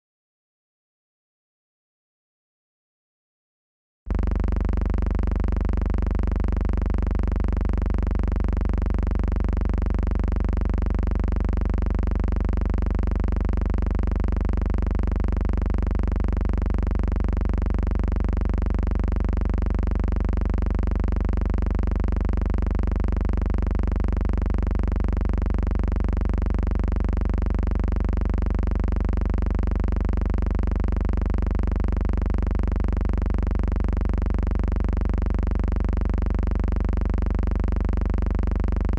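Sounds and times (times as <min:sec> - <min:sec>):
low pulsing hum: 0:04.1 - 0:38.9.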